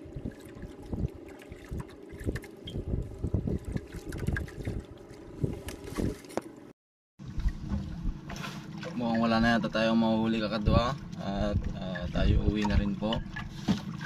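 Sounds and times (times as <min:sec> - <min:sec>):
wind buffeting microphone: 0:00.0 - 0:06.3
waves slapping boat hull: 0:00.0 - 0:14.0.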